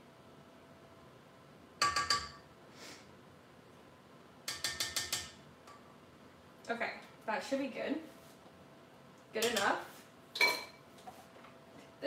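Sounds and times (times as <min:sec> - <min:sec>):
spatula tapping metal bowl: 0:01.8 - 0:02.4, 0:04.5 - 0:05.4.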